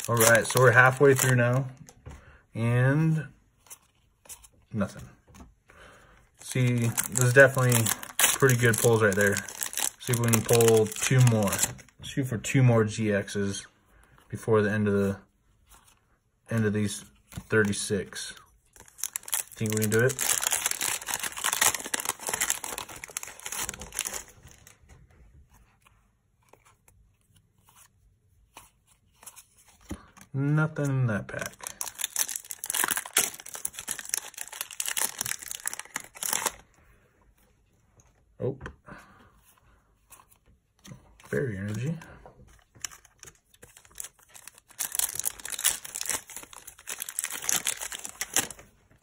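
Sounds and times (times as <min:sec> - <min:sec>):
foil wrapper crinkling and tearing: 0:00.0 - 0:01.6, 0:06.4 - 0:11.8, 0:18.8 - 0:24.7, 0:31.4 - 0:36.6, 0:42.8 - 0:48.6
cards clicking and rustling: 0:00.0 - 0:01.9, 0:06.4 - 0:11.9, 0:18.7 - 0:24.8, 0:31.4 - 0:36.6, 0:40.0 - 0:48.7.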